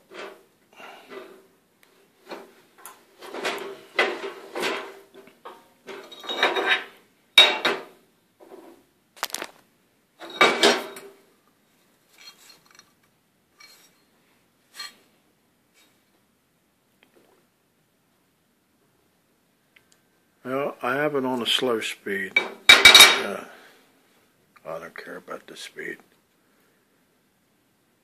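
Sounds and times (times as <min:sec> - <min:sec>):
steel bar clanking and scraping on metal: 0:02.3 - 0:07.9.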